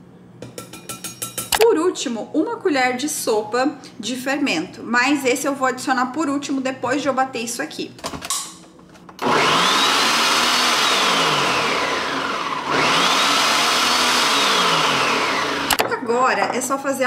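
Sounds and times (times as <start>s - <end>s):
blender motor whining: 9.2s - 15.8s.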